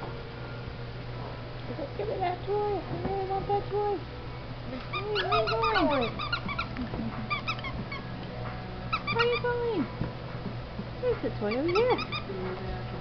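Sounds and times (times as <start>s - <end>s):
puppy high squeaks: 4.7s - 8.1s, 8.9s - 9.5s, 11.5s - 12.3s
puppy whining: 4.7s - 8.2s, 8.9s - 9.5s.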